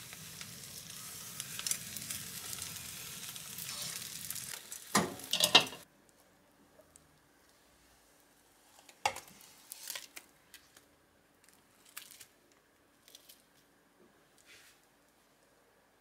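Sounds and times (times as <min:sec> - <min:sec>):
cling film crinkling: 0:00.0 - 0:06.2, 0:09.2 - 0:13.6
frying pan scraping a plate: 0:05.0 - 0:05.8.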